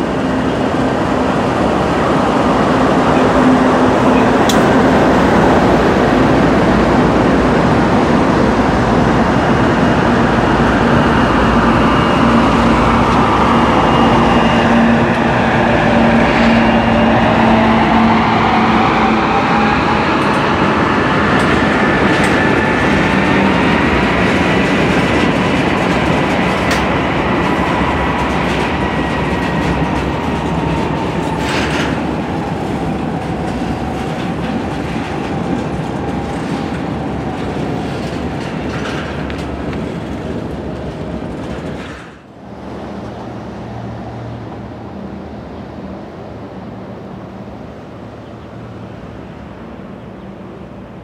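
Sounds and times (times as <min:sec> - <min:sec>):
freight train wheels rumbling: 0:00.0 - 0:51.0
high wheel squeal: 0:10.7 - 0:24.3.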